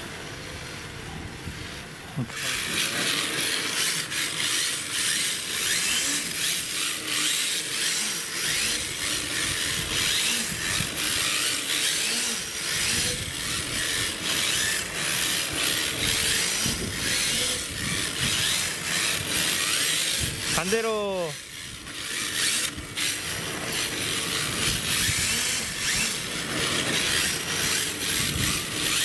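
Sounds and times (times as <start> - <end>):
electric motor whine: 0.0 - 29.0
plastic tyres scraping asphalt: 21.7 - 29.0.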